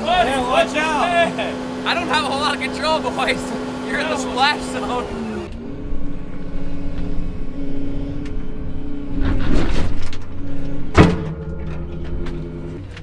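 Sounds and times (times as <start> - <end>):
diesel engine running: 0.0 - 13.0
branches crackling and scraping: 5.6 - 13.0.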